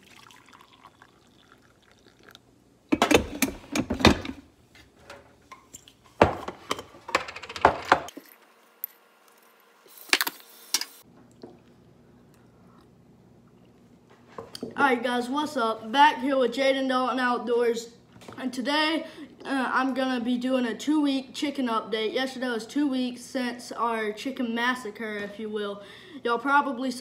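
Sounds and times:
coffee pouring into a mug: 0.0s - 2.5s.

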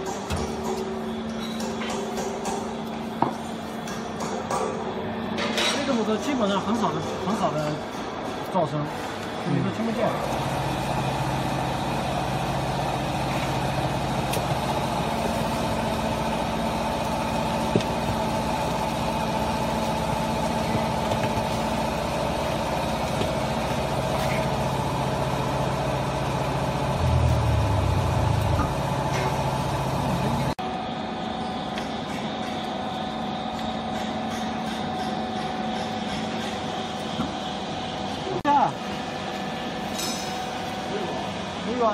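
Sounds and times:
hydraulic pump motor humming: 10.1s - 30.6s
deep loud drone: 25.8s - 30.6s.

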